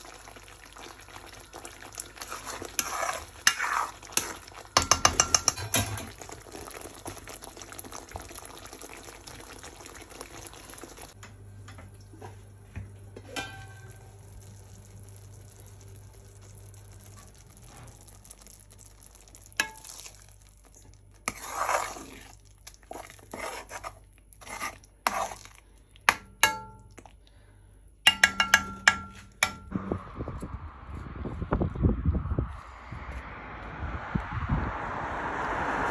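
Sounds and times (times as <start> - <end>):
food sizzling in a wok: 0.0 - 11.2, 13.6 - 23.6
spatula scraping metal wok: 2.2 - 6.0, 21.2 - 25.6.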